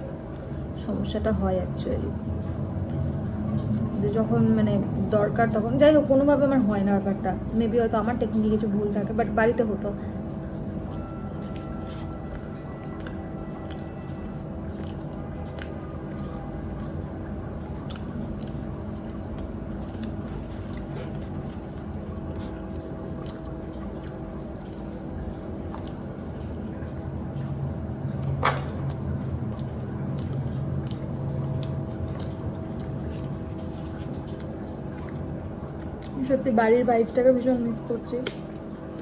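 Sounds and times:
person chewing food: 0.0 - 0.7, 10.6 - 36.2
steady low hum: 0.0 - 39.0
mouth and food clicks: 10.8 - 17.0, 28.1 - 33.4.

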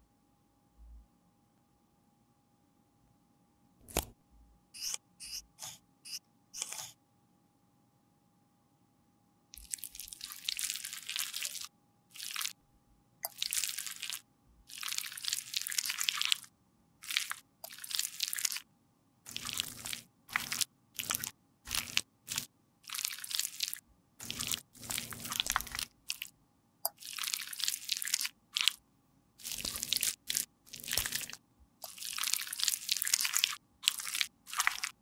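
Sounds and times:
sticky gel crackling: 29.4 - 35.0.

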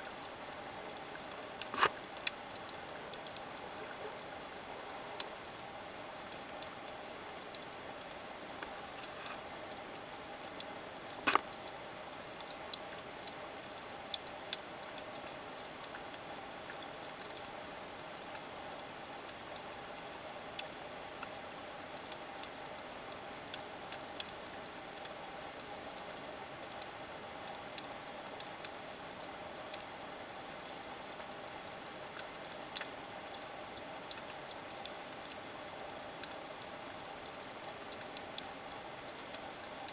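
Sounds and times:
underwater clicks and crackles: 0.0 - 5.6, 6.2 - 17.6
steady hiss: 0.0 - 39.9.

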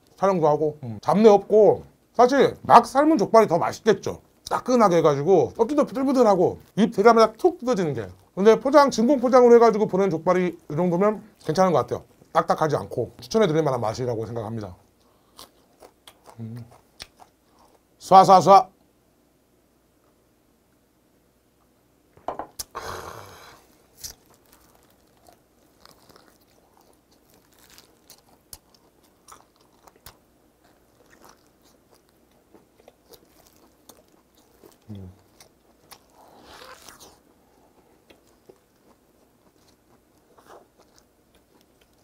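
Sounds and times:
wet smacks and clicks: 15.8 - 17.4
biting and chewing meat: 23.8 - 42.0.

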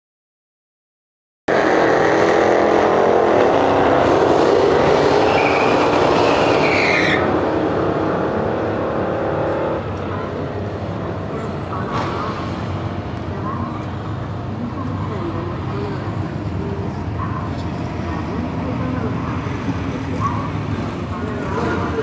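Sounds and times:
high squeal: 5.2 - 7.4.

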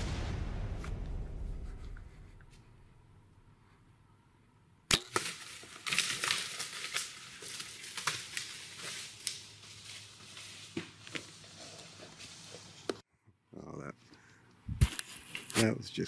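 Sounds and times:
deer crashing through dry leaves: 5.0 - 11.4.

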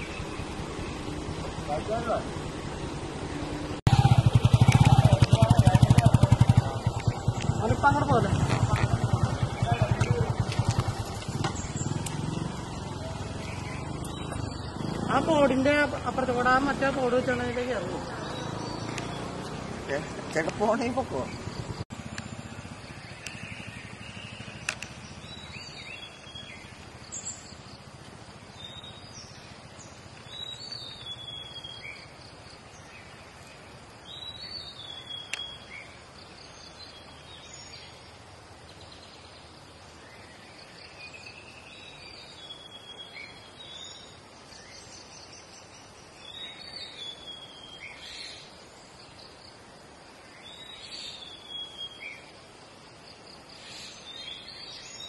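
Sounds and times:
birds chirping: 0.0 - 55.0
insects hissing: 6.6 - 55.0.

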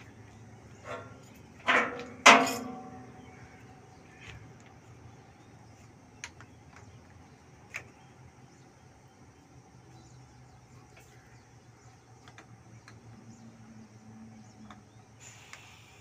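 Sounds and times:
loud metallic clanks ringing: 0.9 - 3.2.

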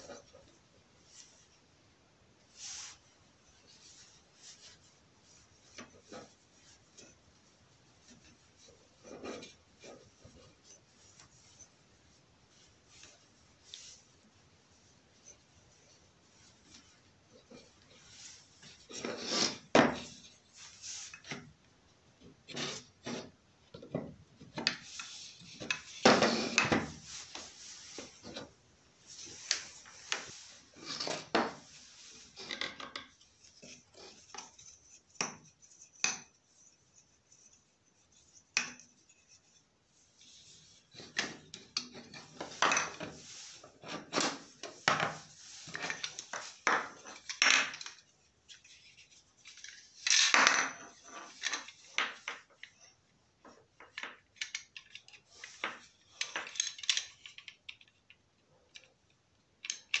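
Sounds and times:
loud scrape: 19.0 - 21.1.

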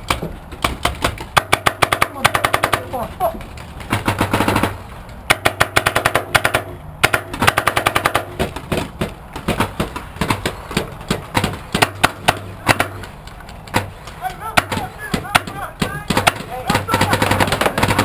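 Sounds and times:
paintball markers firing pops: 3.9 - 13.9.

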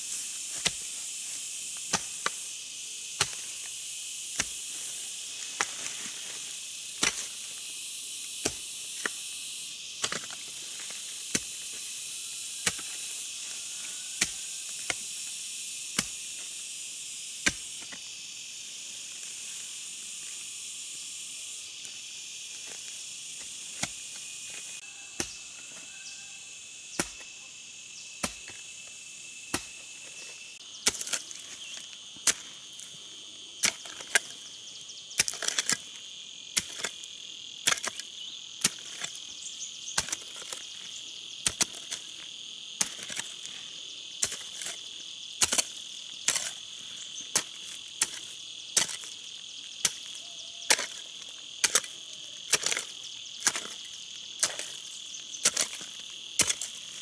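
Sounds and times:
insects chorus: 0.0 - 57.0.

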